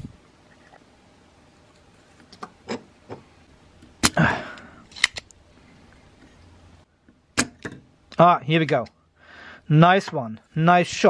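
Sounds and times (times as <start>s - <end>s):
tool handling clicks: 4.9s - 5.4s.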